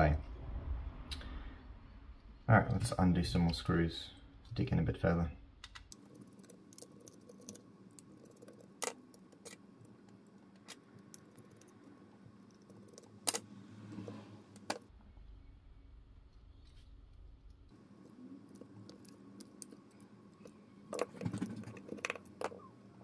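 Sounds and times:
small plastic parts handled: 0:18.0 - 0:22.7.

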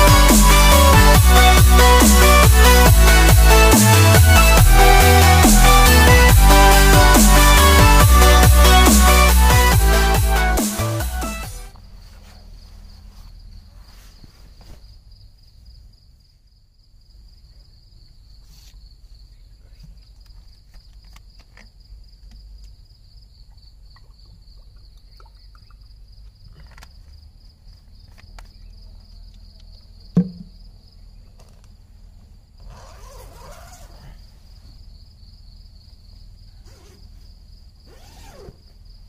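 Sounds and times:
insects trilling: 0:11.8 - 0:31.8, 0:32.5 - 0:39.0
sharp loud knock: 0:30.2 - 0:30.5.

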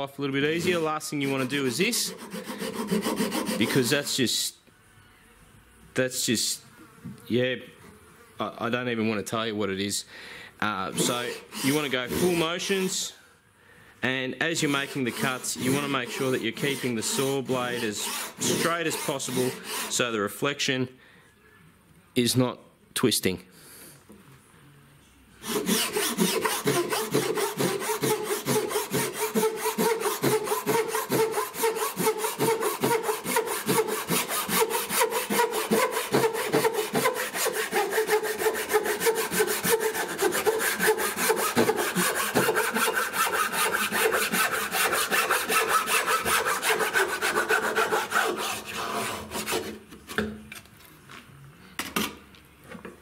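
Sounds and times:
hand saw rasping through wood: 0:00.5 - 0:04.2, 0:10.9 - 0:13.1, 0:14.5 - 0:20.1, 0:25.4 - 0:49.8.

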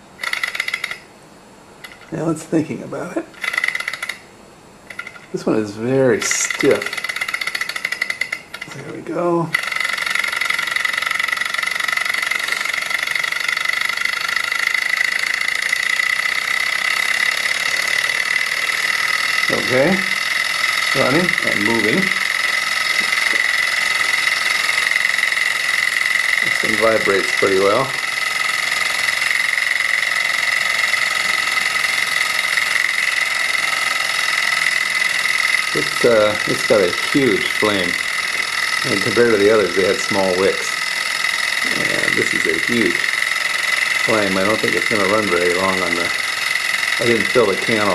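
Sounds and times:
model engine whirring rattle: 0:00.0 - 0:01.1, 0:01.8 - 0:02.5, 0:03.3 - 0:47.9
person talking: 0:02.1 - 0:03.4, 0:05.3 - 0:07.0, 0:08.7 - 0:09.6, 0:19.5 - 0:20.2, 0:20.9 - 0:22.2, 0:26.4 - 0:28.0, 0:35.7 - 0:38.0, 0:38.8 - 0:40.8, 0:41.6 - 0:43.1, 0:44.0 - 0:46.2, 0:47.0 - 0:47.9.

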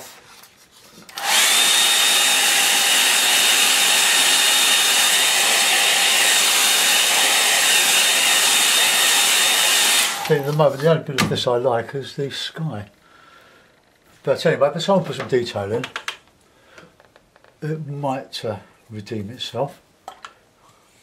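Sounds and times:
hair dryer running: 0:01.1 - 0:10.7.

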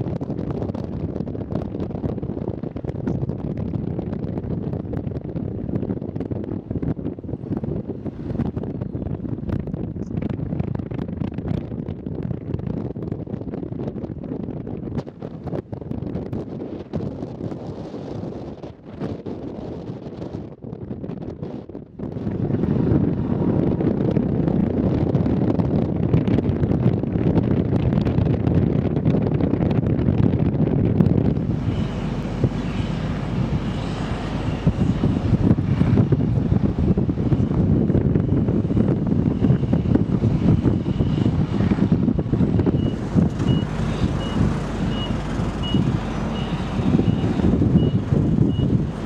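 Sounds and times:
wind buffeting microphone: 0:00.0 - 0:49.0
vehicle reversing alarm beeps: 0:31.4 - 0:35.5, 0:37.9 - 0:41.9, 0:42.6 - 0:48.9.

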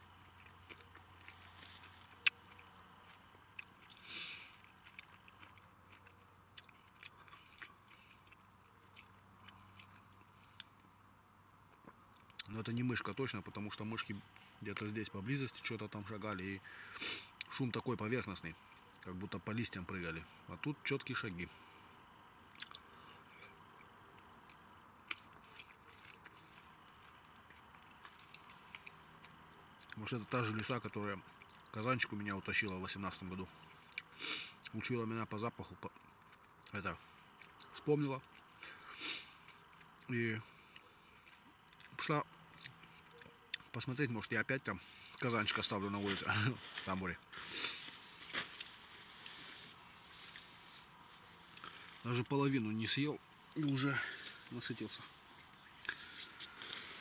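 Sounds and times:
person chewing fruit: 0:00.0 - 0:10.9, 0:11.7 - 0:12.8, 0:22.5 - 0:30.7, 0:31.3 - 0:32.3, 0:33.2 - 0:34.9, 0:35.6 - 0:43.7, 0:44.7 - 0:52.2, 0:53.3 - 0:57.0
wet mouth clicks: 0:22.6 - 0:22.8
mouth clicks of chewing: 0:22.6 - 0:23.9.

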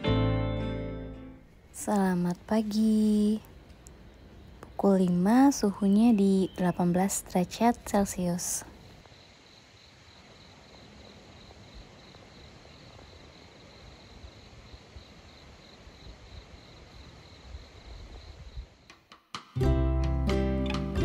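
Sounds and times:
strummed acoustic guitar: 0:00.0 - 0:01.4, 0:19.6 - 0:21.0
insects trilling: 0:02.1 - 0:19.0.

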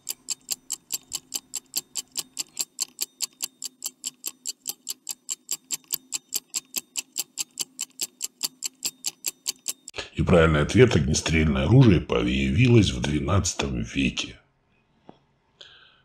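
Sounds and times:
stopwatch ticking: 0:00.0 - 0:10.0.

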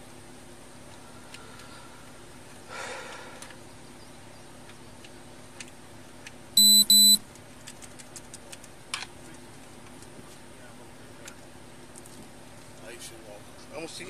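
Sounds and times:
loud electronic beeps: 0:06.6 - 0:07.2.

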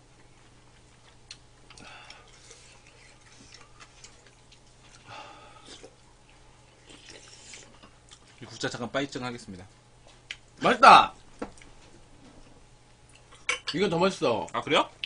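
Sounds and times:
low steady hum: 0:00.0 - 0:15.0
sipping and chewing: 0:00.2 - 0:08.5.

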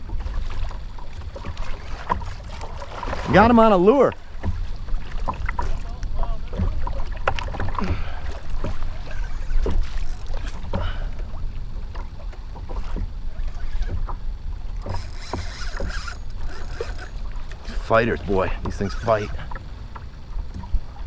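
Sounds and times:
water slapping kayak hull: 0:00.0 - 0:21.0
wind rumble on microphone: 0:00.0 - 0:21.0.

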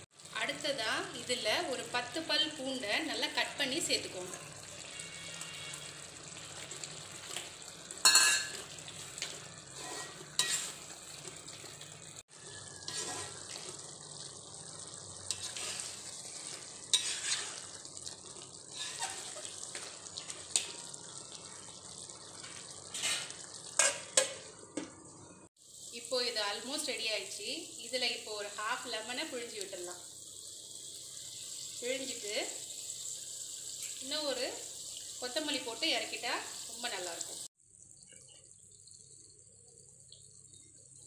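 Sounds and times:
meat sizzling in a pan: 0:00.0 - 0:24.7, 0:25.5 - 0:41.0
ladle scraping a pan: 0:08.0 - 0:11.7, 0:12.6 - 0:13.8, 0:15.3 - 0:17.9, 0:18.7 - 0:20.6, 0:22.4 - 0:24.3.

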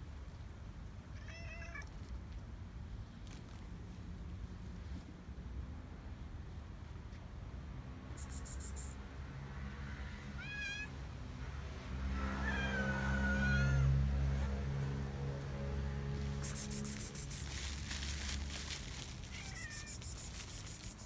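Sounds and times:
cat meowing: 0:01.2 - 0:01.9, 0:10.4 - 0:10.9, 0:19.2 - 0:20.1.

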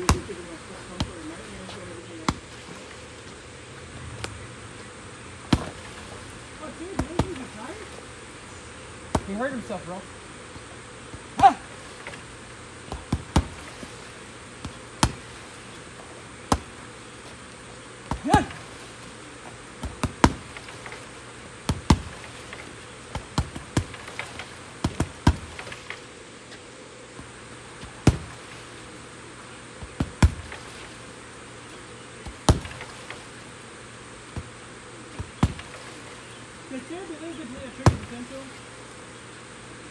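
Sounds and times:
steady buzz: 0:00.0 - 0:39.9
punches thudding on heavy bag: 0:05.5 - 0:05.9, 0:12.9 - 0:13.7, 0:19.8 - 0:20.7, 0:21.6 - 0:22.2, 0:28.0 - 0:28.4, 0:29.9 - 0:30.5, 0:32.2 - 0:32.9.

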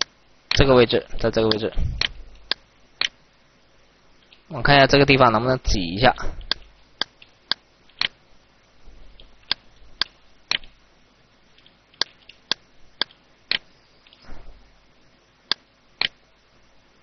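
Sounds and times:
faint room hiss: 0:00.0 - 0:17.0
computer mouse clicking: 0:06.4 - 0:08.2, 0:09.2 - 0:10.8, 0:11.6 - 0:14.2, 0:15.5 - 0:16.2.

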